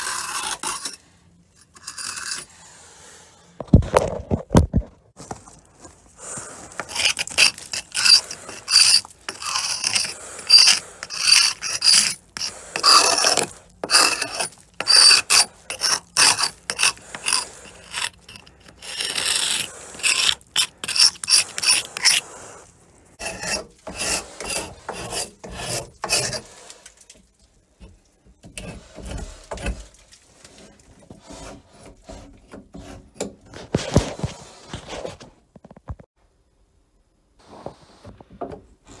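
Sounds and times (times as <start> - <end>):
hand tool scraping wood: 0.0 - 3.2, 6.2 - 27.2, 27.8 - 35.3.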